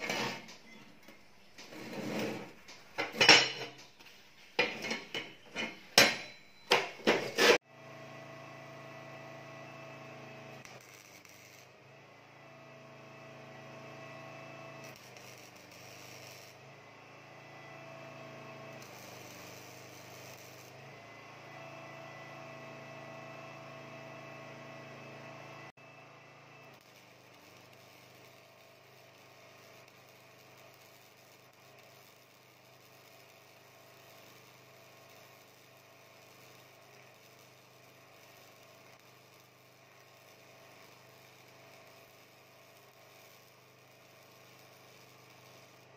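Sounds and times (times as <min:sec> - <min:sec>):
metallic clatter: 0:04.6 - 0:07.6.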